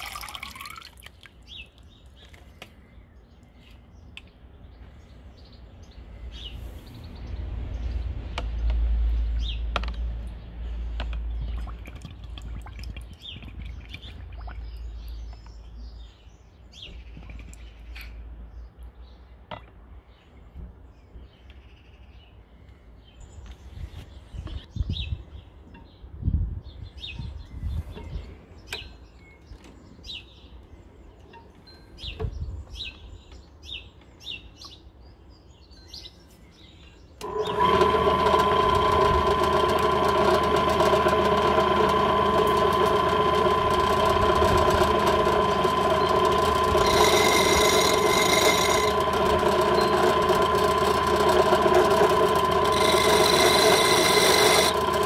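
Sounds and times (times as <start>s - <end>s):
drill bit whine on glass: 37.2s - 55.0s
drill press motor humming: 37.2s - 55.0s.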